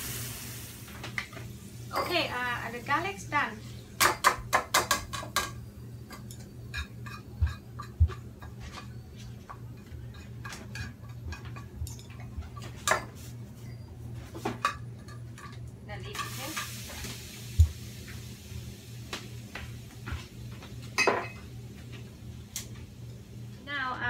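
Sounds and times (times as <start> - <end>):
spoon scraping and tapping in a pan: 4.0 - 13.2.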